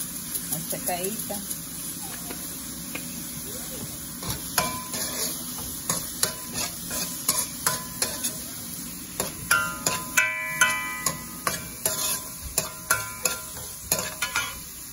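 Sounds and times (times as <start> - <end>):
vegetables sizzling in oil: 0.0 - 14.9
metal spoon scraping a pan: 4.2 - 8.5, 9.2 - 14.7.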